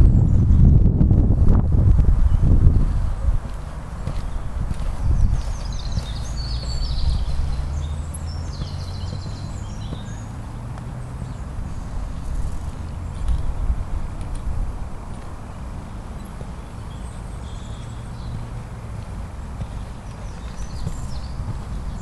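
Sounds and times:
steady low rumble: 0.0s - 22.0s
horse hoofbeats on sand: 3.3s - 11.0s, 17.8s - 22.0s
bird chirps and trills: 4.0s - 13.4s, 15.9s - 18.5s, 19.6s - 22.0s.

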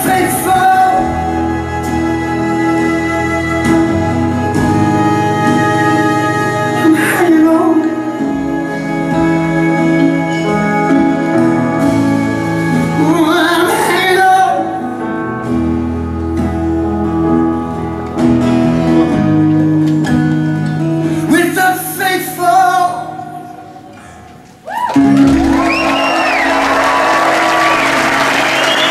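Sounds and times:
man singing: 0.0s - 3.6s, 5.3s - 15.1s, 21.1s - 23.8s
violin: 0.0s - 15.0s
acoustic guitar: 0.0s - 28.9s
audience applause: 24.6s - 28.9s.

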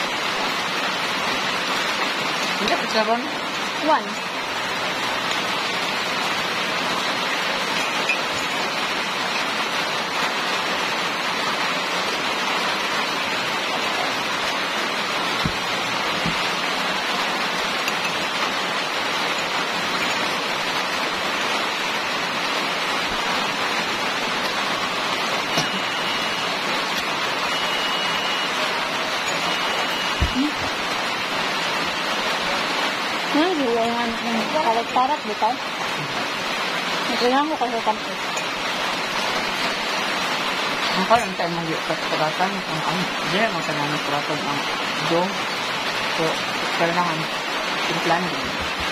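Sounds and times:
rushing rain or water: 0.0s - 48.9s
short high beeps: 25.5s - 26.6s, 27.5s - 30.6s.

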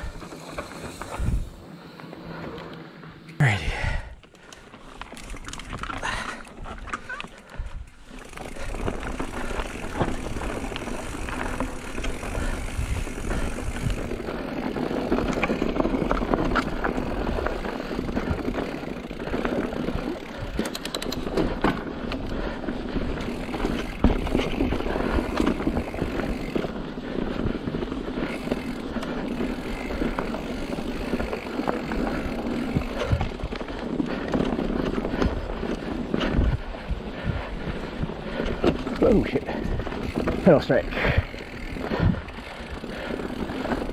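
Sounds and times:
bike tyres rolling on dirt: 0.0s - 43.9s
bike clicks and knocks: 4.2s - 26.8s, 28.1s - 36.6s, 38.3s - 43.9s.

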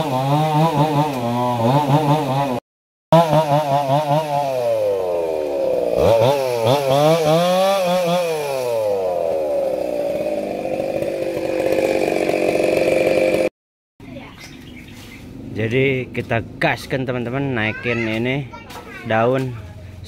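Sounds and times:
chainsaw revving and cutting branches: 0.0s - 13.5s.

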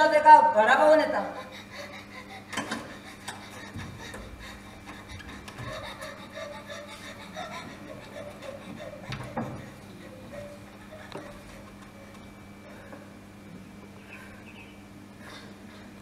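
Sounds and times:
steady low hum: 0.0s - 16.0s
faint distant murmuring: 6.4s - 14.8s.

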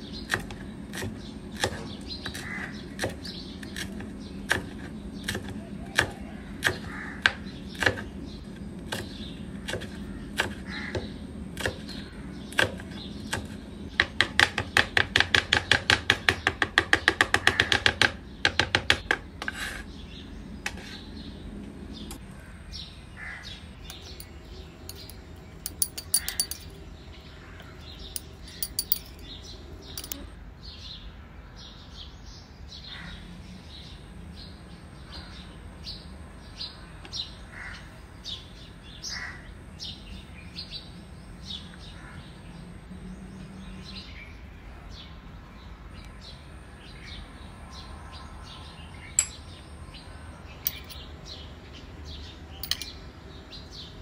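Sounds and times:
spoon tapping glass bowl: 24.9s - 26.7s, 28.2s - 29.2s, 30.0s - 30.2s.

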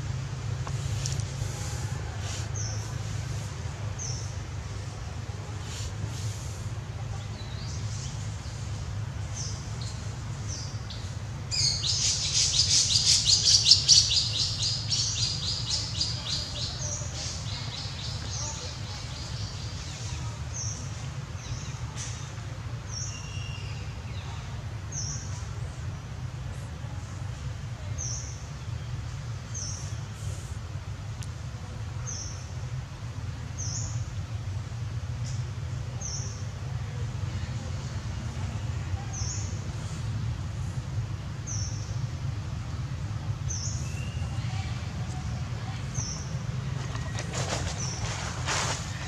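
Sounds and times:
low background rumble: 0.0s - 49.0s
faint bird twittering: 43.4s - 49.0s.

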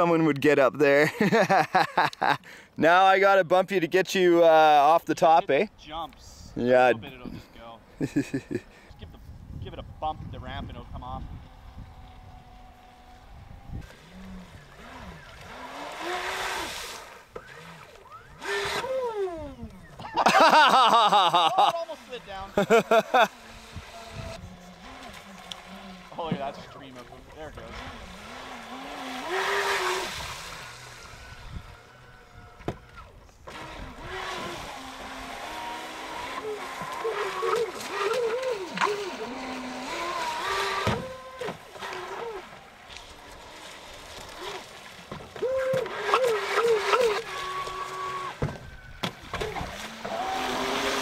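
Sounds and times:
electric motor whine: 9.0s - 20.0s, 22.5s - 51.0s.

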